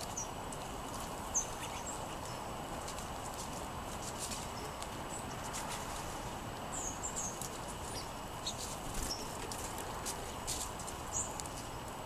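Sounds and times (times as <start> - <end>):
high bird chirps: 1.3 - 2.5, 6.7 - 9.3.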